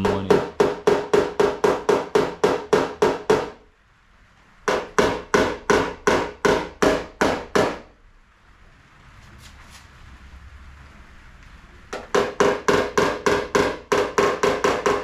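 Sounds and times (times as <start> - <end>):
hammer tapping on metal panel: 0.0 - 3.6, 4.7 - 7.9, 11.9 - 15.0.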